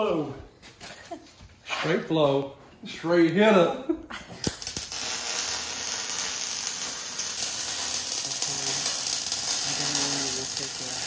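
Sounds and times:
welding arc crackling: 4.4s - 11.0s.

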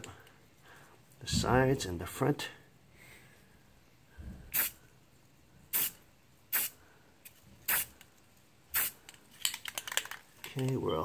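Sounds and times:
spray paint can hissing: 4.5s - 4.8s, 5.7s - 6.8s, 7.7s - 7.9s, 8.7s - 9.0s.

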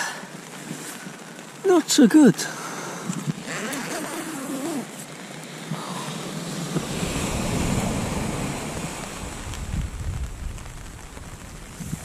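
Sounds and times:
surf washing onto beach: 0.0s - 12.0s
wind buffeting microphone: 6.4s - 12.0s.

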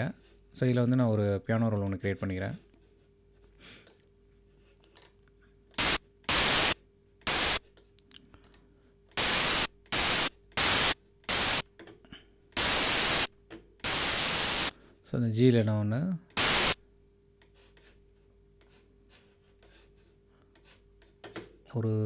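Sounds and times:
synth white noise bursts: 5.8s - 7.6s, 9.2s - 11.6s, 12.6s - 14.8s, 16.4s - 16.8s.

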